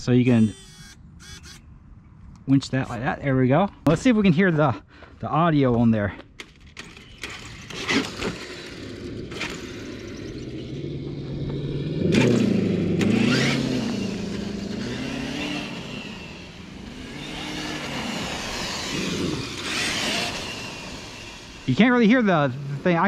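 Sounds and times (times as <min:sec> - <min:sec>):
electric motor whining: 0:00.2 - 0:01.6, 0:07.1 - 0:23.0.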